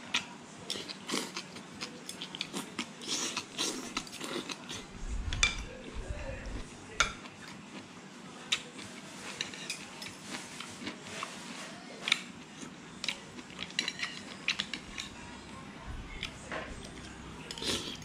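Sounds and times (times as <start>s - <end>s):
cutlery clinking on a plate: 9.3s - 10.2s, 13.6s - 15.1s.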